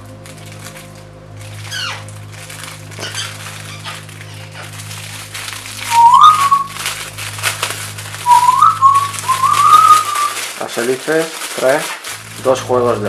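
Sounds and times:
plastic bag crinkling: 0:00.0 - 0:13.0
person whistling: 0:05.8 - 0:06.8, 0:08.2 - 0:10.4.

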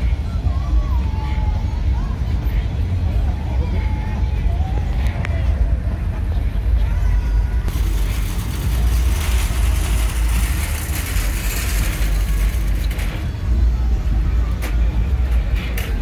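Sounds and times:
low engine rumble of traffic: 0:00.0 - 0:16.0
rush of passing traffic: 0:04.3 - 0:15.9.

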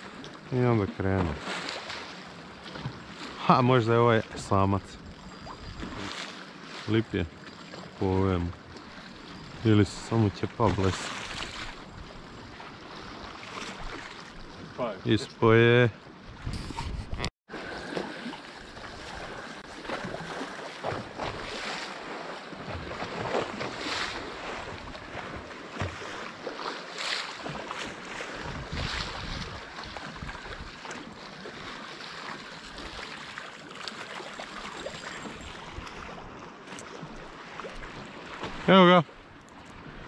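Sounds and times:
waves lapping on shore: 0:00.0 - 0:40.0
wind buffeting microphone: 0:28.3 - 0:30.8.

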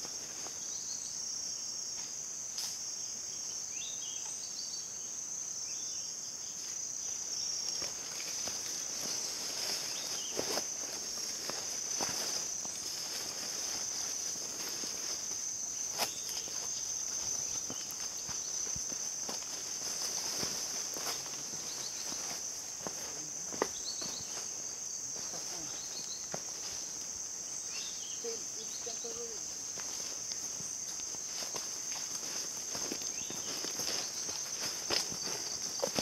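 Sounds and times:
insects droning: 0:00.0 - 0:36.0
footsteps on dirt trail: 0:07.7 - 0:27.2, 0:29.6 - 0:36.0.

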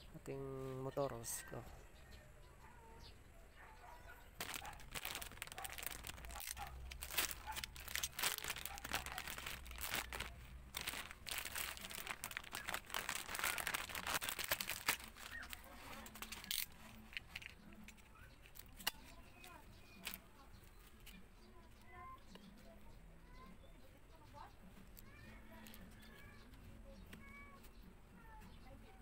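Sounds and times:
plastic packaging crinkling: 0:04.4 - 0:20.2.

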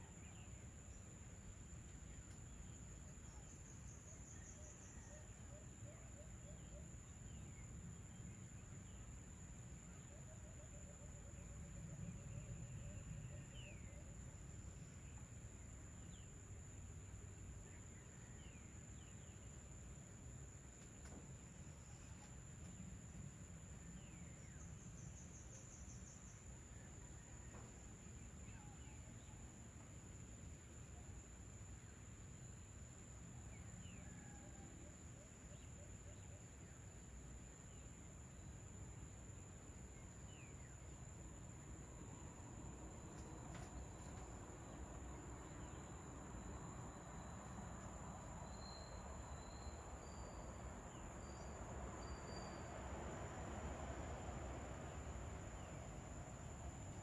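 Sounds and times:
crickets droning: 0:00.0 - 0:57.0.

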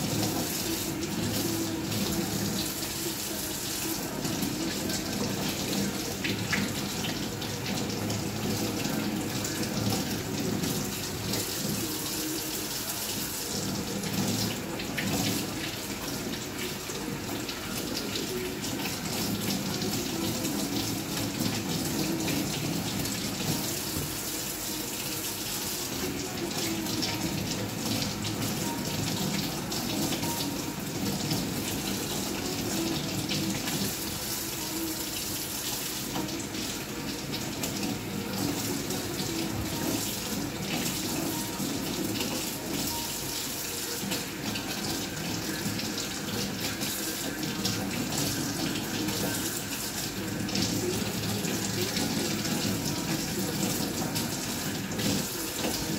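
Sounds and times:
tap water splashing: 0:21.0 - 0:24.3.

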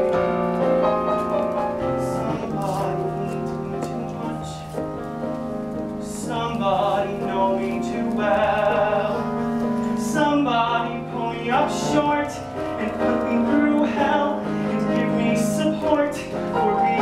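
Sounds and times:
piano sustained chords: 0:00.0 - 0:17.0.

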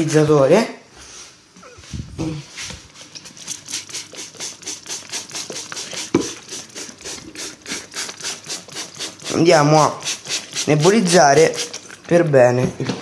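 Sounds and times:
spray bottle squirts: 0:02.8 - 0:12.0.

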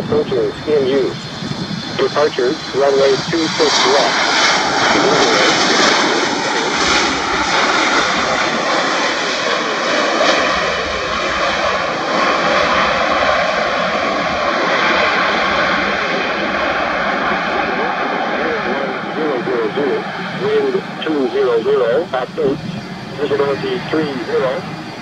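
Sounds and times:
high whine: 0:00.0 - 0:25.0
jet engine rush: 0:00.0 - 0:25.0.

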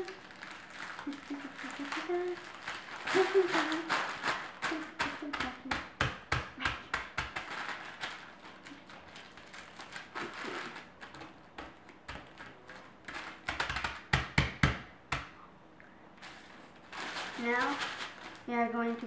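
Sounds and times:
plastic bag rustling: 0:00.0 - 0:05.7, 0:07.0 - 0:13.6, 0:16.2 - 0:19.0
hands pounding plastic bag: 0:00.0 - 0:15.4, 0:16.9 - 0:18.5.

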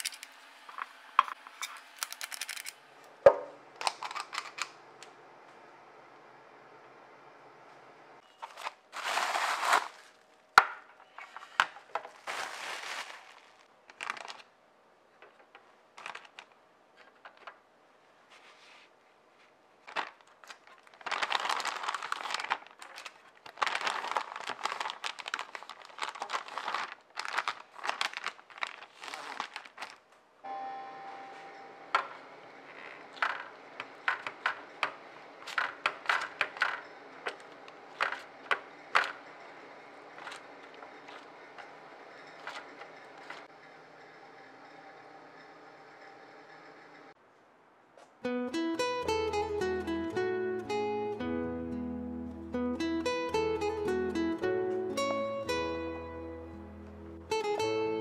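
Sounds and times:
room hum: 0:00.0 - 0:58.0
plastic bags crinkling: 0:08.4 - 0:10.4, 0:11.2 - 0:14.6, 0:15.9 - 0:16.6, 0:19.8 - 0:30.2, 0:32.7 - 0:39.2, 0:40.1 - 0:43.5.

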